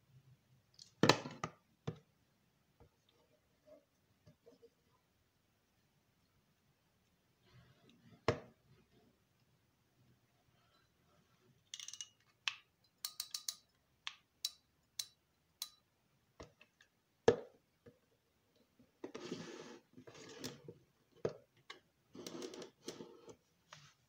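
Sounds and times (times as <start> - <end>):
fishing reel clicking and snapping: 13.0 - 13.6.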